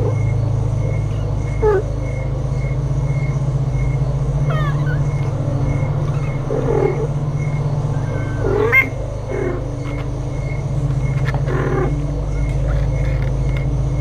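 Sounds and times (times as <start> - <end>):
steady low hum: 0.0 - 14.0
kittens meowing: 4.4 - 5.4, 6.0 - 7.2, 7.9 - 10.1.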